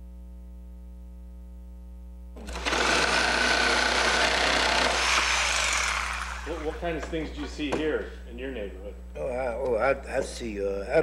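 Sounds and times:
electrical hum: 0.0s - 11.0s
power tool running: 2.4s - 7.2s.

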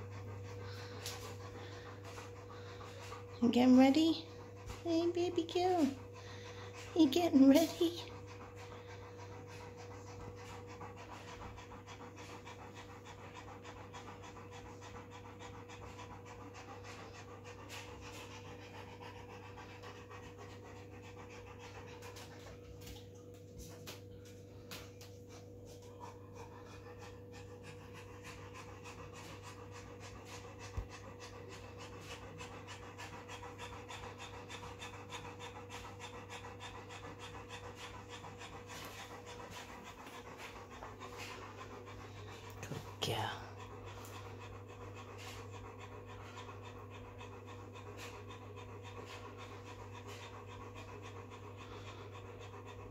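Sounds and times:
dog panting fast: 0.0s - 52.9s.

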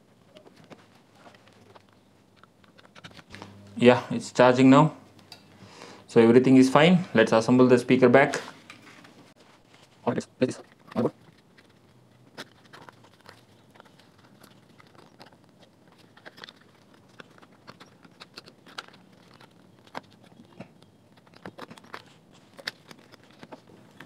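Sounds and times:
small clicks and scrapes: 0.3s - 3.5s, 10.5s - 24.0s.

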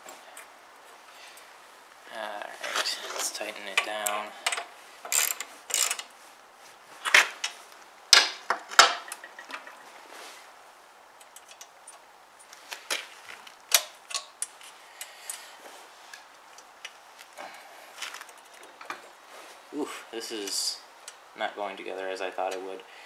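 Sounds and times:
wrench clicking on metal: 4.0s - 6.1s.

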